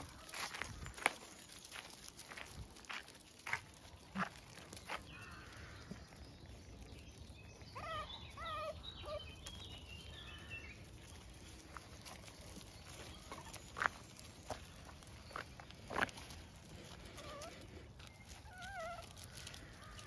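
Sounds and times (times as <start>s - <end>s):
footsteps on gravel: 0.0s - 8.0s, 9.2s - 20.0s
puppies yelping: 7.6s - 9.7s, 16.6s - 20.0s.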